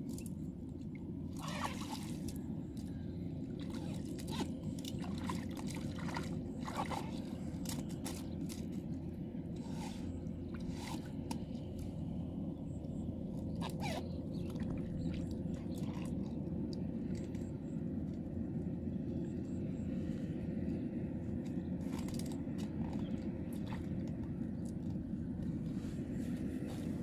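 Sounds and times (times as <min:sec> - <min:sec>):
water pump engine running: 0:00.1 - 0:18.5
water splashes: 0:03.6 - 0:07.7.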